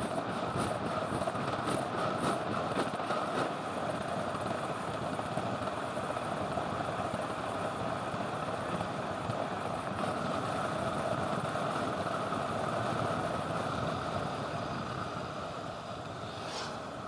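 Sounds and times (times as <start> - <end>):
wind rushing over microphone: 13.0 - 17.0.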